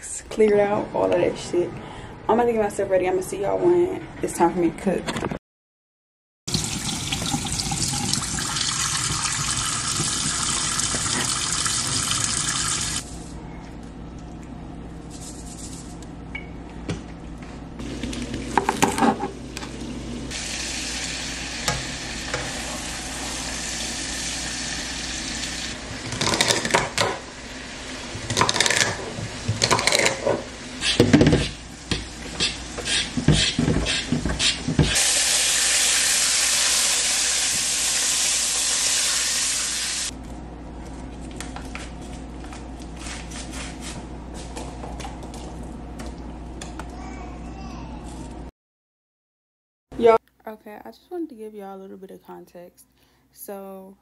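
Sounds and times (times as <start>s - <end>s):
tap water running into sink: 6.5s - 13.0s
sizzling in hot wok: 19.4s - 26.6s, 30.4s - 40.1s.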